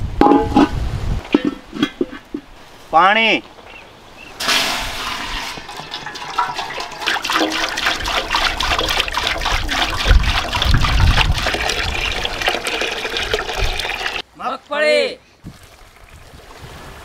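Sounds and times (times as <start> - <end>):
water pouring into metal pot: 4.4 - 14.2.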